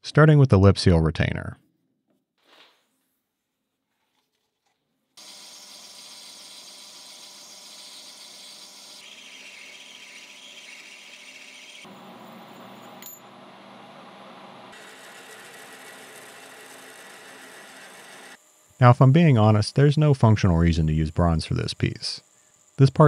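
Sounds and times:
metal lathe cutting hiss: 5.2s - 11.9s
drill boring into metal: 5.2s - 13.0s.

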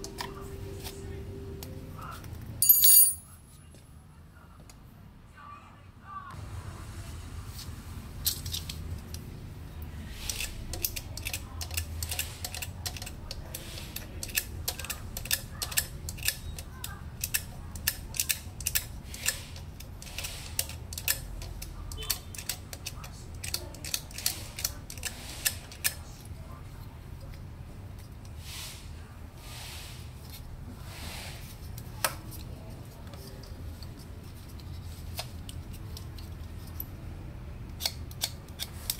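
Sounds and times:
clicks and snaps of wire connectors: 10.3s - 26.0s, 37.6s - 38.9s.

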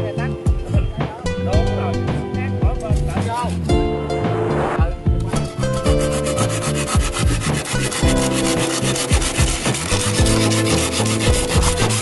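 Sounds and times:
knife scraping bamboo pole: 5.3s - 12.0s.

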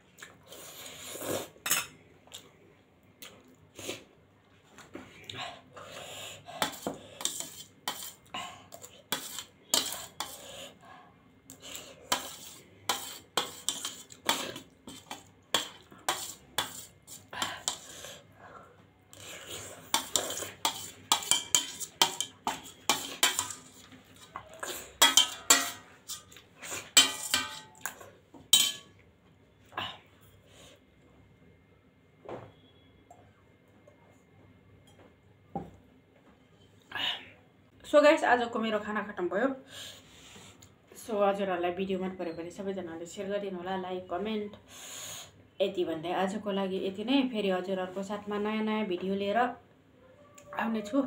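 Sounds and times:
metal spoon scraping a steel plate: 6.6s - 8.2s, 9.1s - 10.5s, 12.1s - 16.9s, 19.9s - 23.8s, 24.6s - 27.8s.

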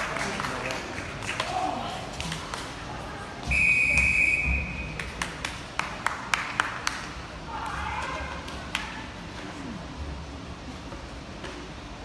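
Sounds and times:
referee's long whistle: 3.5s - 4.8s.

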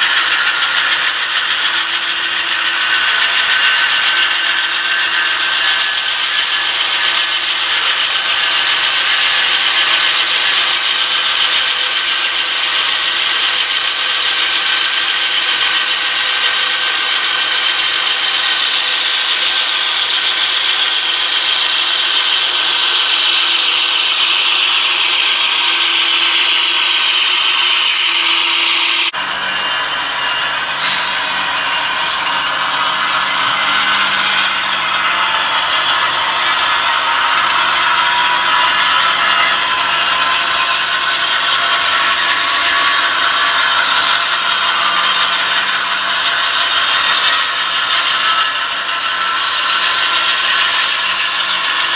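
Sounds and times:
model train whir and rattle: 0.0s - 51.9s.

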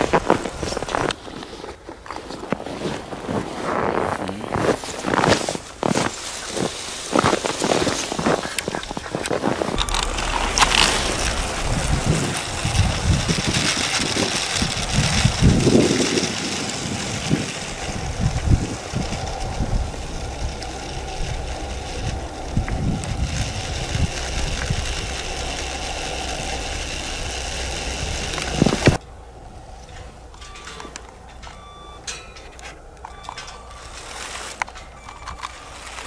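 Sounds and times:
snow crunching and scraping: 0.0s - 29.0s, 33.4s - 36.0s
toy train motor whirring: 7.4s - 29.0s.

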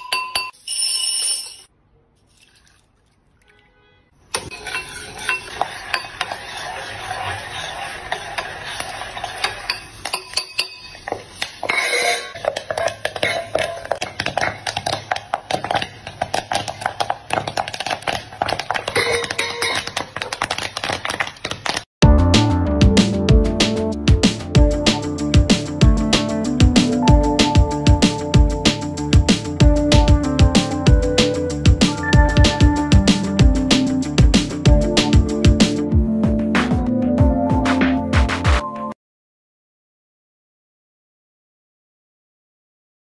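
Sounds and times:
popcorn popping in a pot: 12.3s - 21.9s.

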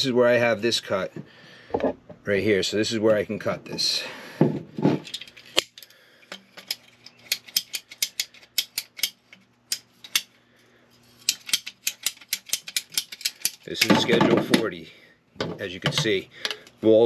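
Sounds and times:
pipe cutter ratchet clicking: 5.6s - 10.3s, 11.3s - 13.9s.

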